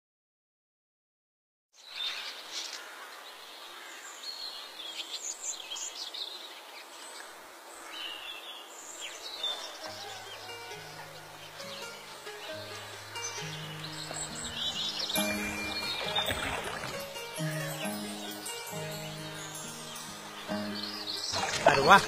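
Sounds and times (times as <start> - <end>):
birds chirping: 1.8 - 22.0
insects hissing: 9.1 - 22.0
low sustained music notes: 9.8 - 22.0.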